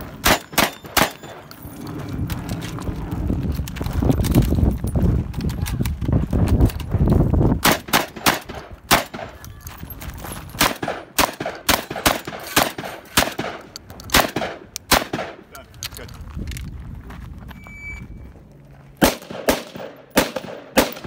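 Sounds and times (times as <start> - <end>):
shotgun shots: 0.2 - 1.5, 7.6 - 9.4, 10.6 - 15.4, 19.0 - 21.0.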